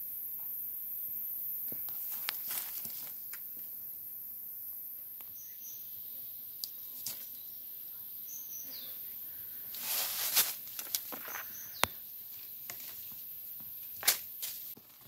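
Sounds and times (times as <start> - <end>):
steady high hiss: 0.0 - 15.0
rustle of leaves and twigs: 0.2 - 15.0
high bird chirps: 5.3 - 6.6, 11.2 - 12.0.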